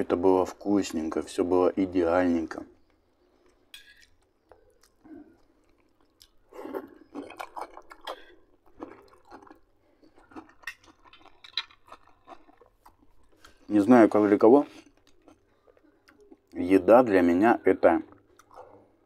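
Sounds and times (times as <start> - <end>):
man chewing food: 2.8 - 13.7, 14.7 - 16.6, 18.0 - 19.0.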